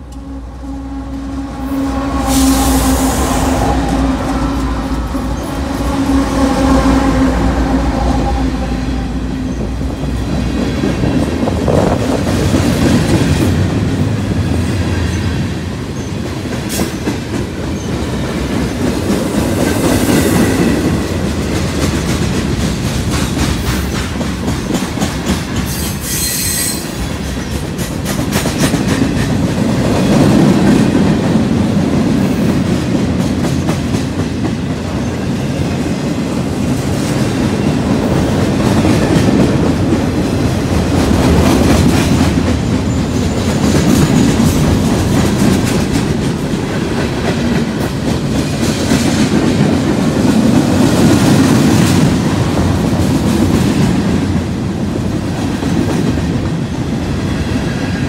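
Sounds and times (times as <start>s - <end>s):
diesel locomotive engine drone: 0.0s - 26.1s, 26.8s - 58.0s
high wheel squeal: 25.7s - 27.0s.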